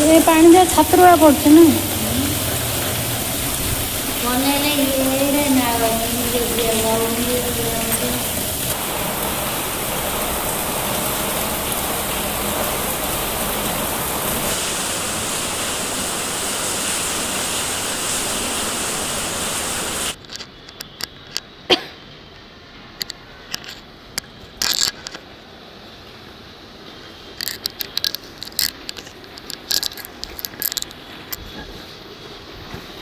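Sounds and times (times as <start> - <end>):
rain pouring: 0.0 - 20.3, 25.8 - 33.0
scattered clicks: 27.4 - 31.4.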